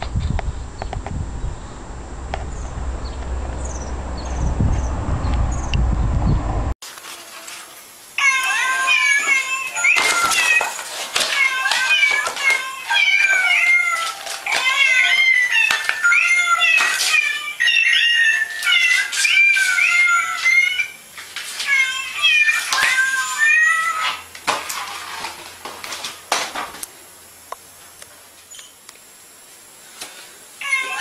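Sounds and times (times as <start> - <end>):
cat meowing: 8.2 - 21.0, 21.6 - 24.3, 30.6 - 31.0.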